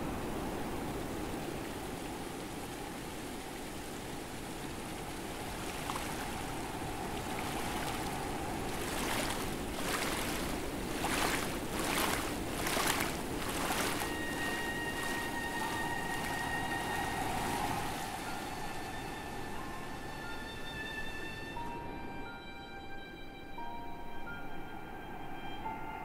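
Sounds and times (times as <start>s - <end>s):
water splashes: 0.0s - 20.1s
floodwater rushing: 0.0s - 21.8s.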